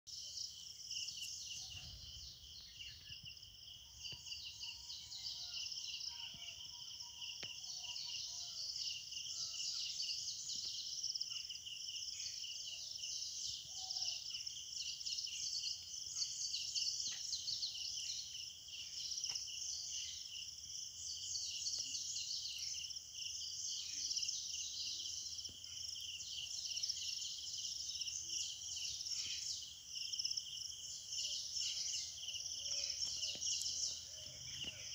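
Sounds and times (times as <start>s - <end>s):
insect chorus: 0.1s - 34.9s.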